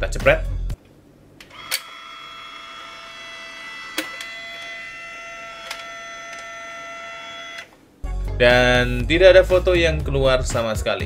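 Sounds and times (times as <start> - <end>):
camera motor whining: 1.5 - 7.8
camera mechanism clicks: 3.9 - 4.8, 5.5 - 6.6.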